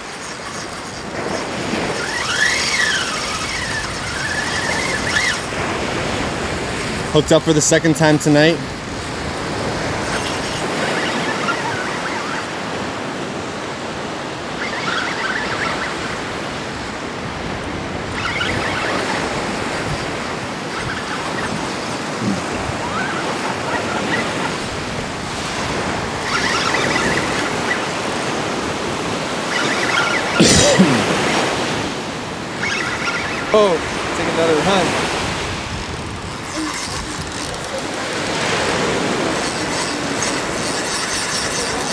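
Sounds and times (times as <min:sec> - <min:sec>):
surf washing onto beach: 0:30.9 - 0:40.4.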